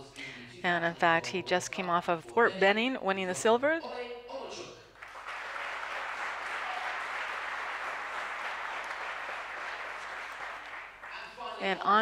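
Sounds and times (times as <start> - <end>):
audience applauding: 5.0 - 11.6.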